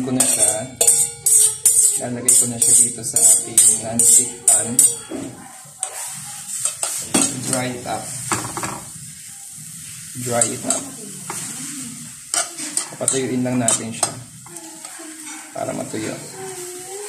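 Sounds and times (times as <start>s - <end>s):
noodles sizzling in a frying pan: 0.0s - 17.0s
metal tongs clicking and scraping: 0.2s - 5.0s.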